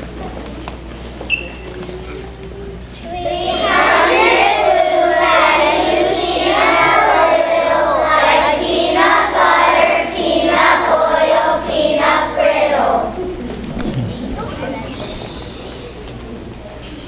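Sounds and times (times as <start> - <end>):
children singing in unison: 3.1 - 15.9.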